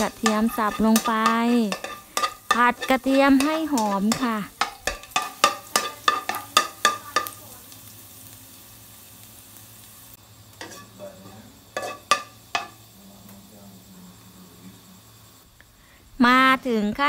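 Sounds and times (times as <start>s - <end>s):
metal spatula stirring in wok: 0.0s - 7.4s, 10.6s - 12.8s
garlic sizzling in hot oil: 0.0s - 13.6s.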